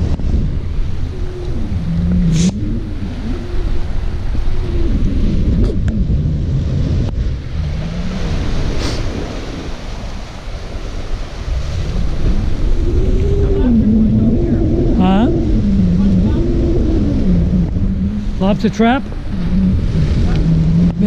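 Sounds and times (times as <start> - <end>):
low hum: 0.0 - 21.0
waves washing against boulders: 0.0 - 21.0
wind buffeting microphone: 0.0 - 21.0.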